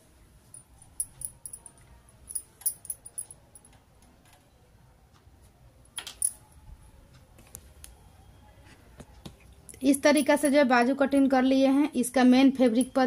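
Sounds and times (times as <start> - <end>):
bangles clinking and jingling: 0.4 - 3.8, 6.0 - 6.6, 9.7 - 11.5, 12.6 - 13.0.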